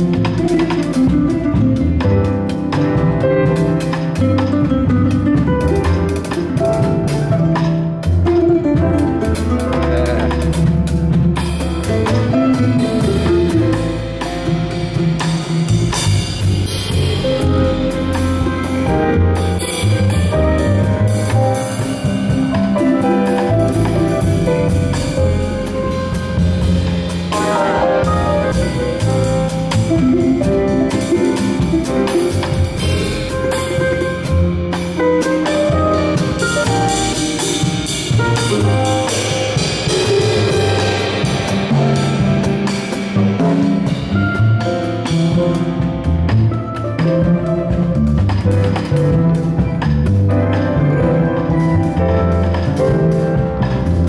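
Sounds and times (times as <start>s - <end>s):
double bass: 0.0s - 54.0s
drum kit: 0.0s - 54.0s
plucked mandolin melody: 0.4s - 11.1s.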